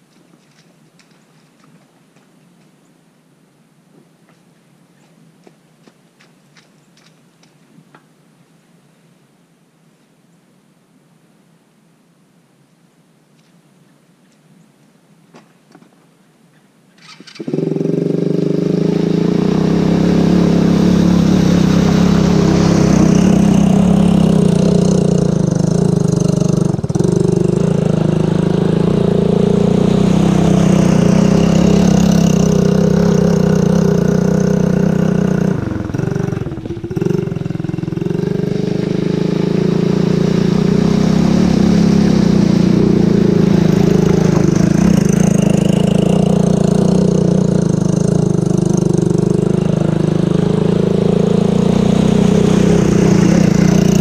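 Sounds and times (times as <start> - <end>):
atv engine running: 17.0 - 54.0.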